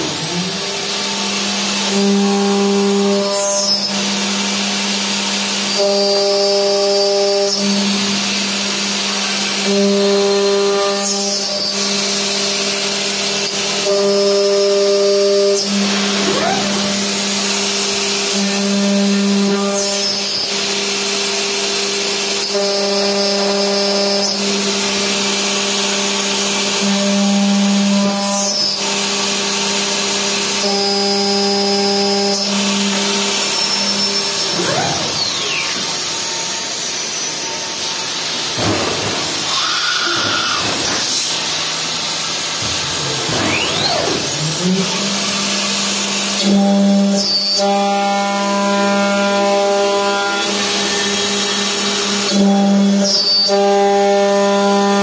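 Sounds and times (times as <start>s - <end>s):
milling machine whine: 0.0s - 55.0s.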